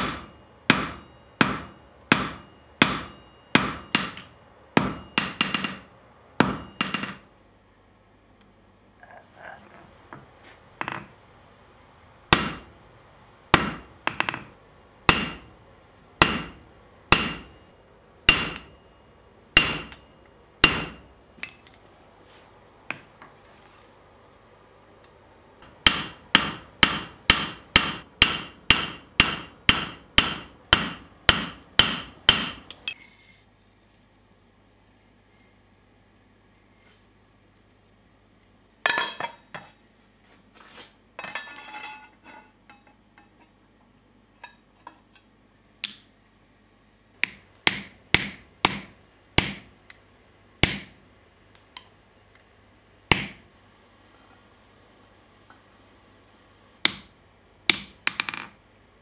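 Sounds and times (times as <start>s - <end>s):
hammer striking steel on anvil: 0.0s - 7.3s, 12.3s - 12.7s, 13.5s - 15.6s, 16.2s - 21.7s, 25.6s - 33.3s, 47.2s - 49.8s, 50.6s - 51.0s, 53.1s - 53.4s, 56.8s - 57.1s, 57.7s - 58.5s.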